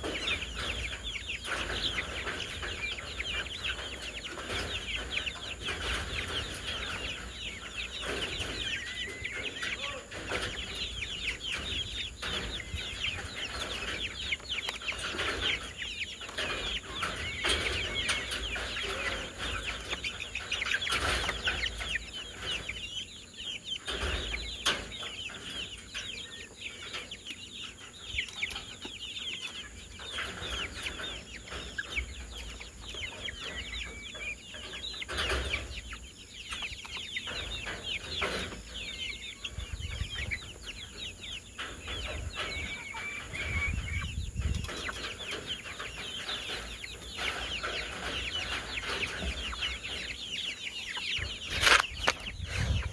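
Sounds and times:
chicks peeping and chirping: 0.0 - 52.9.

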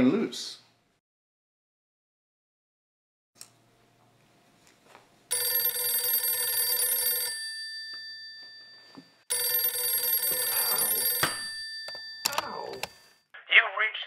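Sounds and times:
telephone bell ringing: 5.3 - 13.3.

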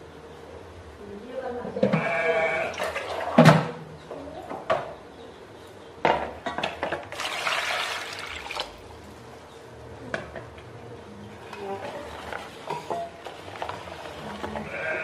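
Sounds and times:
water pouring into plastic basin: 7.1 - 8.8.

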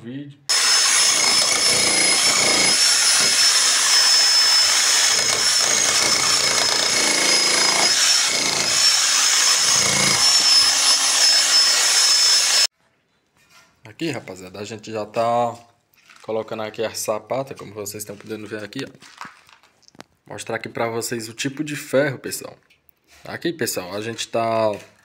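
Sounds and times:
demolition hammer chiselling brick: 0.5 - 12.6.

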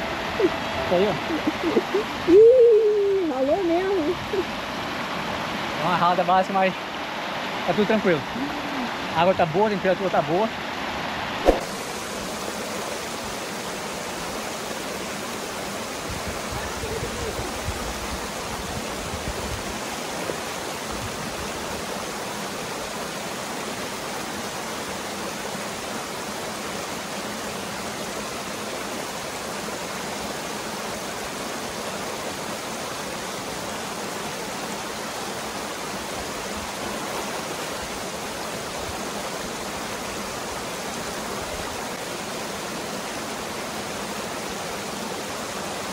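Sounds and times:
river water pouring over rocks: 0.0 - 45.9
sharp knock: 11.4 - 11.8.

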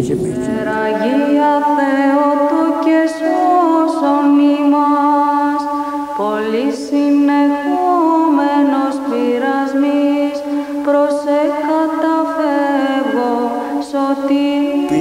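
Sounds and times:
solo voice chanting: 14.7 - 15.0.

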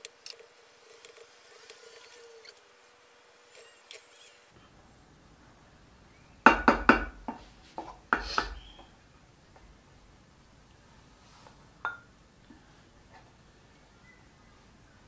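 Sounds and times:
wooden spatula knocking on pot: 6.5 - 8.9.

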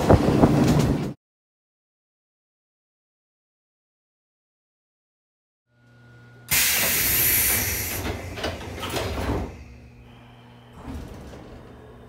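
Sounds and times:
steady low hum: 5.7 - 12.0
air hiss of train doors: 6.5 - 12.0
doors sliding shut with knocks: 6.6 - 9.6, 10.7 - 12.0.

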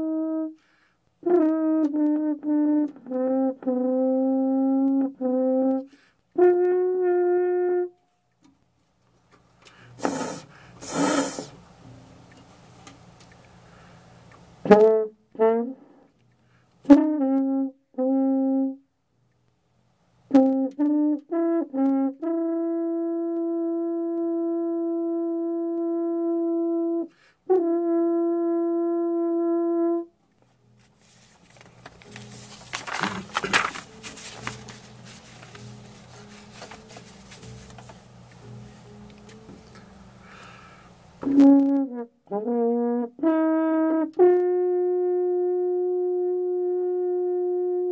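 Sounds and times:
french horn notes: 0.0 - 8.2, 9.7 - 12.0, 14.6 - 18.9, 20.3 - 31.2, 32.0 - 47.9
breath noise: 0.6 - 1.1, 5.9 - 6.3, 9.6 - 11.6, 13.4 - 14.2, 15.8 - 16.8, 27.1 - 27.5, 39.8 - 41.1.

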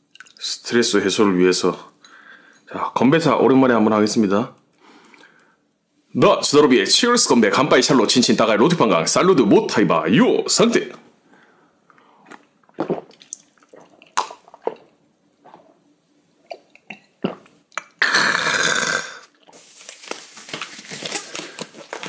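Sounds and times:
person gulping drink: 12.2 - 15.8, 16.4 - 19.6
plastic glove crinkling: 19.5 - 22.0.

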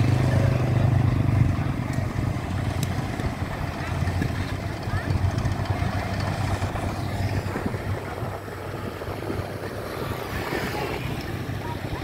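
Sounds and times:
combine harvester engine droning: 0.0 - 12.0.

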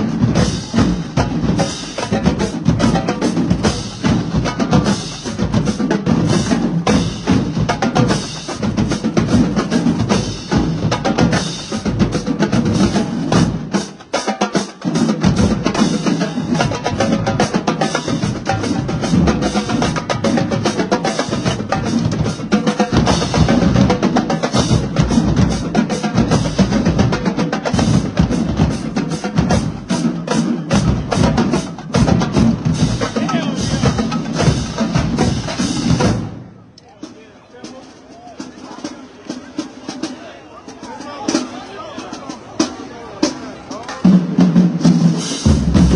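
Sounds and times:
snare drums: 0.0 - 45.9
booming bass drums: 45.4 - 45.9.

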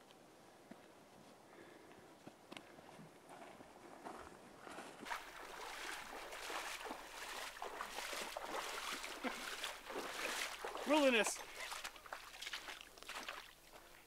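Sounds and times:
boots splashing through water: 5.0 - 14.0.

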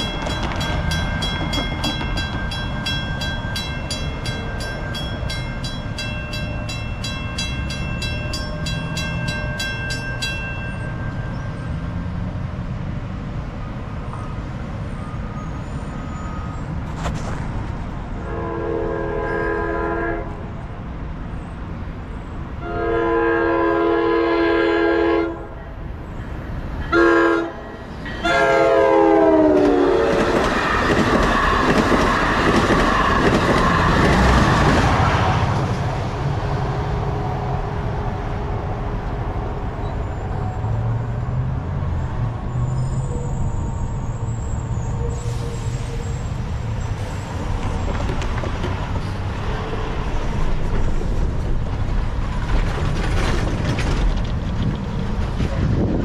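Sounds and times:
train wheel clatter: 0.0 - 11.4, 29.5 - 36.0, 47.0 - 56.0
road traffic rumble: 0.0 - 56.0
locomotive horn blasts: 18.2 - 20.5, 22.6 - 25.6, 26.9 - 30.3.

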